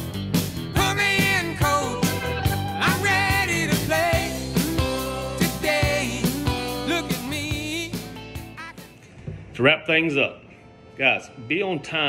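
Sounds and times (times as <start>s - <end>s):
song with singing over a band: 0.7s - 8.7s.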